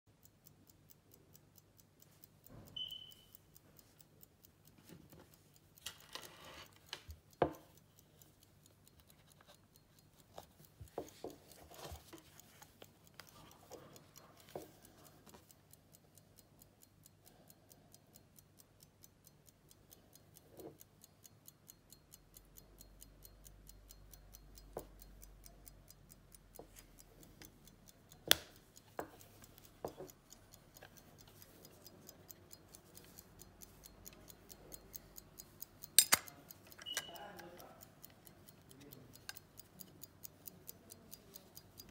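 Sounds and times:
pocket watch ticking: 0:00.1 - 0:41.9
watch cover clicking: 0:34.1 - 0:37.1.

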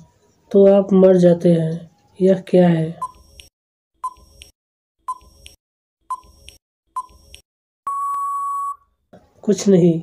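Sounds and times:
long steady beep: 0:07.9 - 0:08.9.

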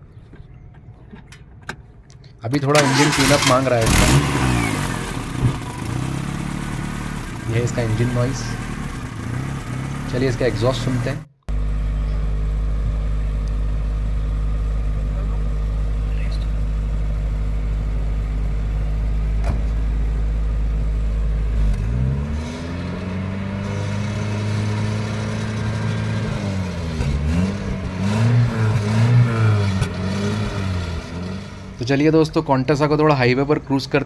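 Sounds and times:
car engine idling and revving: 0:00.1 - 0:34.0.

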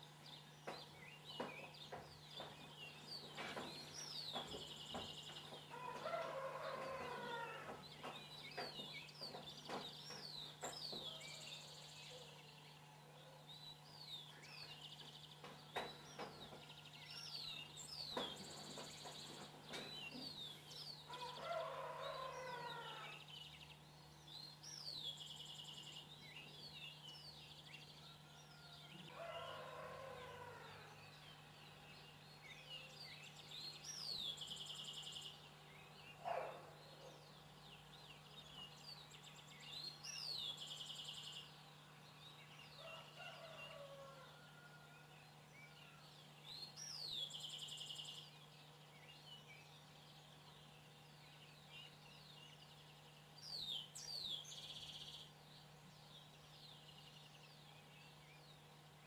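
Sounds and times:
songbirds chirping: 0:00.0 - 0:59.0
rooster crowing: 0:05.7 - 0:07.8, 0:21.1 - 0:23.2, 0:28.0 - 0:31.1, 0:42.8 - 0:45.2.

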